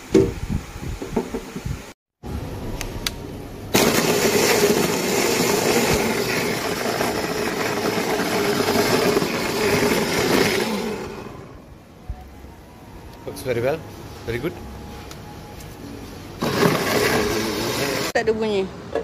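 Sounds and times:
blender running: 3.7 - 11.6, 16.4 - 18.2.

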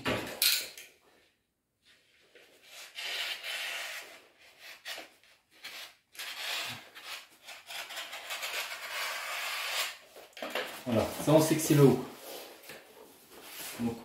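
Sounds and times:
knife slicing through wallpaper: 2.6 - 10.0.

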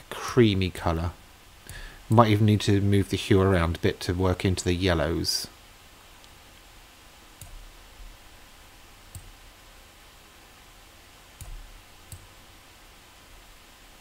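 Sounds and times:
faint steady hiss: 0.0 - 14.0
computer mouse clicking: 7.4 - 7.6, 9.1 - 9.4, 11.4 - 12.3.

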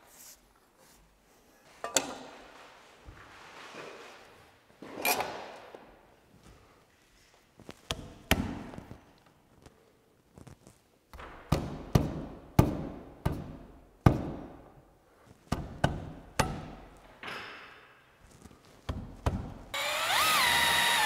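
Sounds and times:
cordless drill whine: 19.8 - 21.0.

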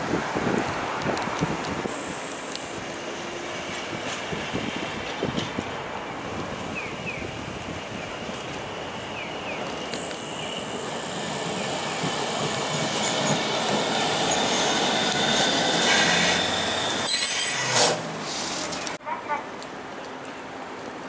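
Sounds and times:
tram rolling on rails: 0.0 - 21.0
faint high wheel squeal: 14.1 - 18.0.

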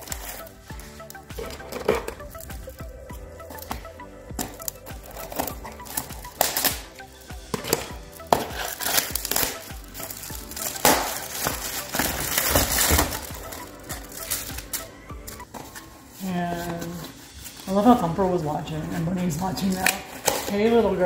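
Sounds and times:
plastic packaging tearing: 0.0 - 2.7, 4.5 - 14.9
cardboard boxes rustling: 0.0 - 6.7, 7.5 - 18.0.

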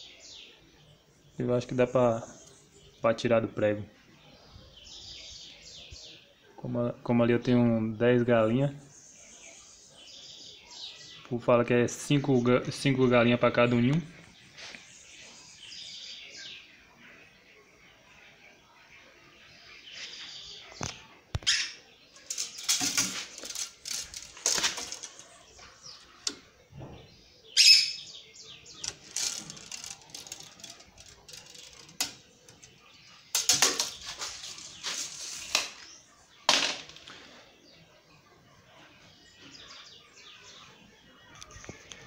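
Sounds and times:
bird chirps: 13.8 - 36.5.

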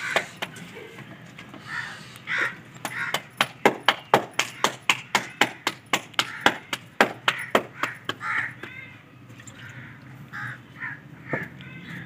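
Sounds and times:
palms slapping dough: 2.8 - 8.8.

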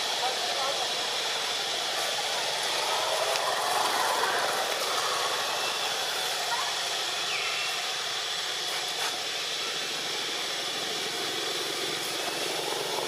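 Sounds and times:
thin steady high tone: 0.0 - 8.6
outdoor background hiss: 0.0 - 13.0.

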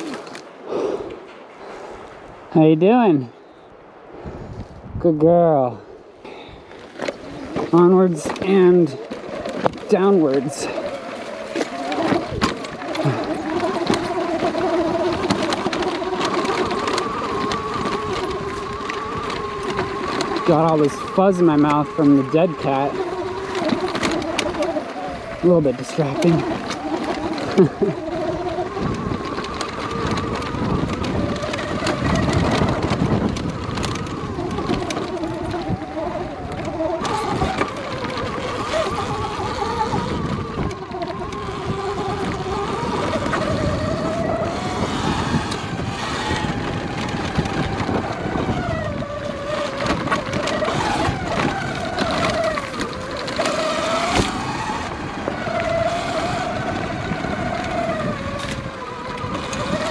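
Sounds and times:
electric motor whine: 6.8 - 59.9
bike knocking on bumps: 10.8 - 24.8.

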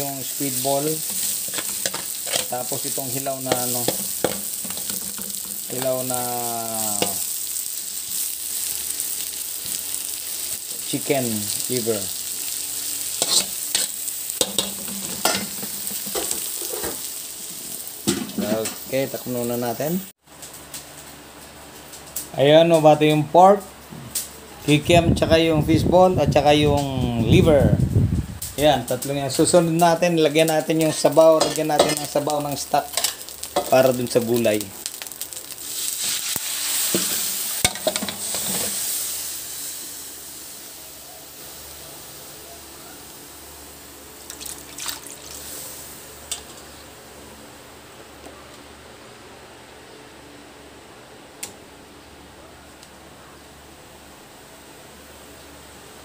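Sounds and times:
food sizzling in a wok: 0.0 - 21.1, 28.4 - 47.7
utensil scraping a pan: 1.0 - 5.8, 13.2 - 17.0
metal utensil clinking on pan: 31.4 - 32.1.

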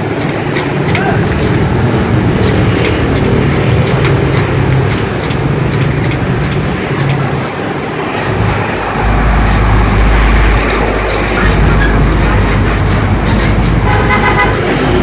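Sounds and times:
street traffic: 0.0 - 15.0
knife chopping sugarcane: 0.1 - 7.6
vehicle engine running: 8.3 - 15.0.

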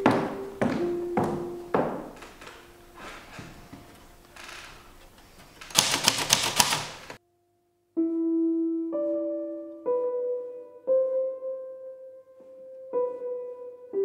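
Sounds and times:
single piano notes: 0.0 - 4.3
manual typewriter key strikes: 5.6 - 7.2.

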